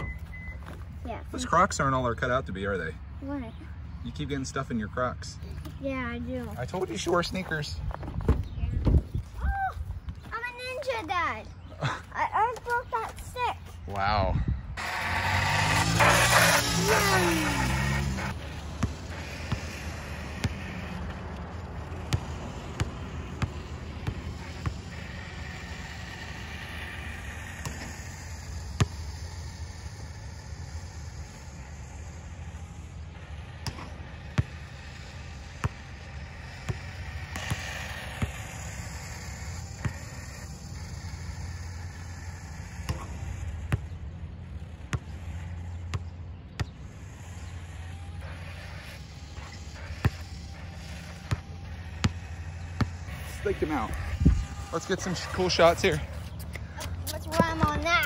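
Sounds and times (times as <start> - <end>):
steady low hum: 0.0 - 58.0
basketball bouncing on asphalt: 5.5 - 9.3, 16.0 - 58.0.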